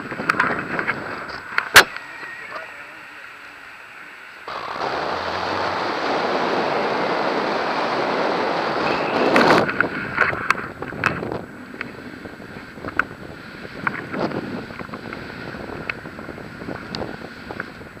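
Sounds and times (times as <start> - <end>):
wind rushing over microphone: 4.5 - 18.0.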